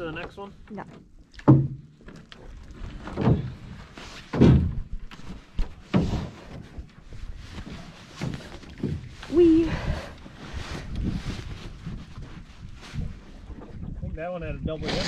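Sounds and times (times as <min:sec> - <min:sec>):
paddle thunks on metal hull: 0:01.4 - 0:02.2, 0:03.0 - 0:06.9.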